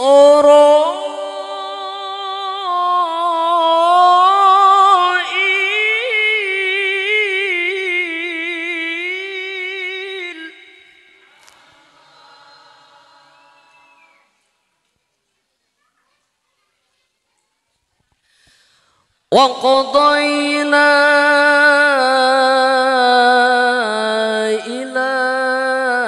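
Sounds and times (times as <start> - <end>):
man chanting through microphone: 0.0 - 11.4, 19.3 - 26.0.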